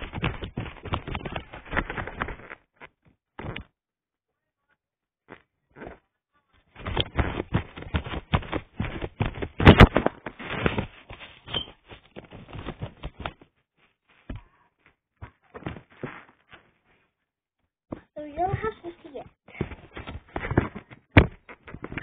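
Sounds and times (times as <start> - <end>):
paper rustling and clicking: 0.0 - 3.7, 6.8 - 14.5.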